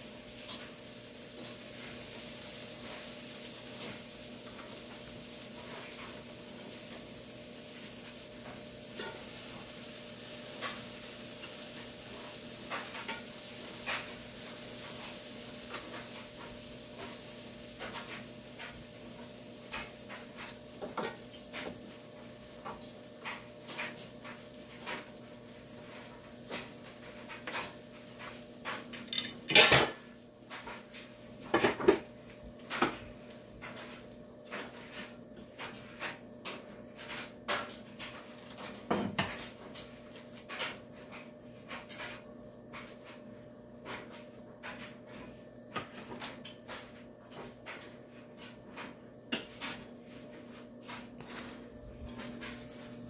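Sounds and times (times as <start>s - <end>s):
dishes and cutlery clinking: 26.5s - 30.8s, 45.7s - 49.9s.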